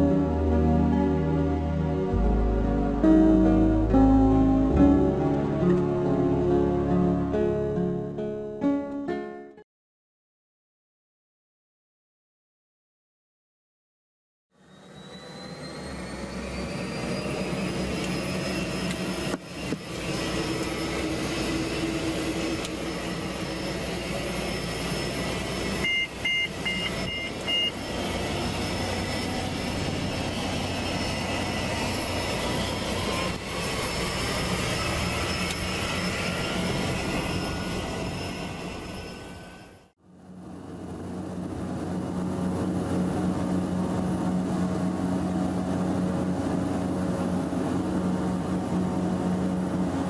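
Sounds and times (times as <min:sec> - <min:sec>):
aircraft engine drone in cabin: 0:14.5 - 0:50.0
two-tone beeps: 0:25.8 - 0:27.8.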